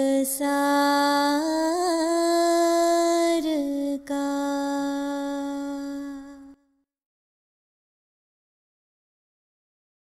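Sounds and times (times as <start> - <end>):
woman singing long notes: 0.0 - 6.6.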